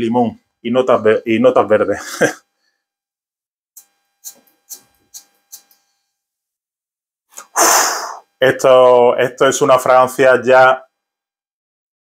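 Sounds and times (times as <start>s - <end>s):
person sniffing: 7.3s - 8.3s.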